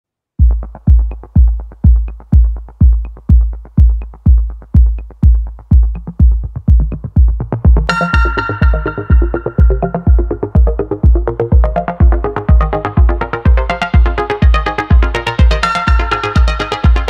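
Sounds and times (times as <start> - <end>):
electronic dance music: 0.4 - 17.0
heavy kick drum: 0.4 - 17.0
bright synthesizer chord: 7.9 - 17.0.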